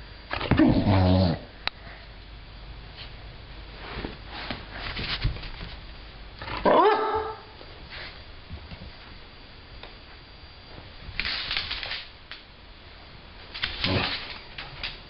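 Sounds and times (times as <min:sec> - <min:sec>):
soft scuffling: 0:02.9 - 0:06.1
dog barking: 0:06.6 - 0:07.5.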